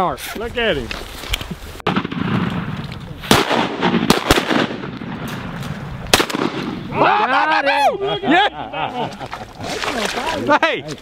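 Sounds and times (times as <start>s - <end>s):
shotgun shots: 1.8s - 6.9s.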